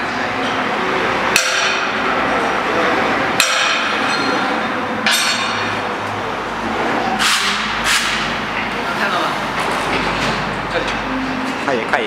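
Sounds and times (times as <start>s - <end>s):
metal-on-metal clanks: 3.4s - 5.8s.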